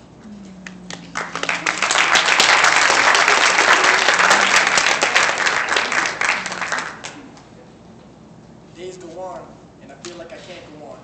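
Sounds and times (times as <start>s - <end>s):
audience applauding: 0.8s - 7.3s.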